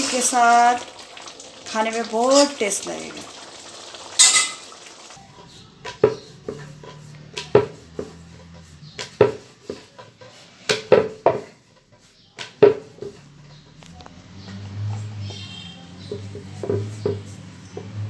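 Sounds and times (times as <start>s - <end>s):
rolling pin clacking on wooden board: 9.0s - 11.5s.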